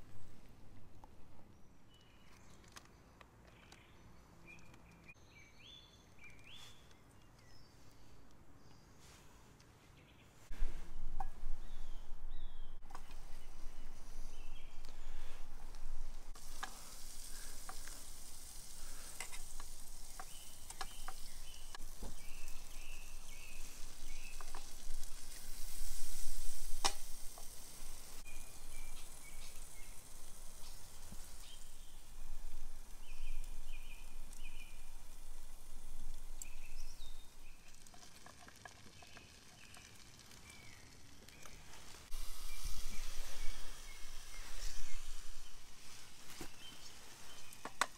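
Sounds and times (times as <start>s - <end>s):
food sizzling in a frying pan: 15.9s - 47.9s
utensil clicking in a pan: 16.4s - 25.6s, 26.6s - 27.6s.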